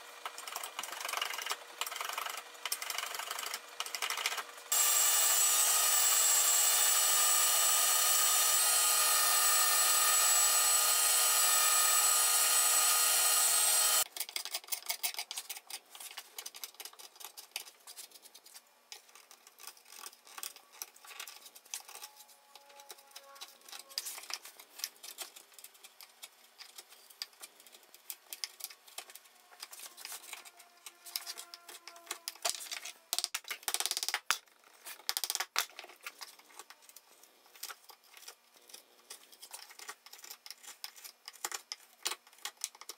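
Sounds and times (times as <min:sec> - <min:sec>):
electric sander whining: 0:04.7 - 0:14.0.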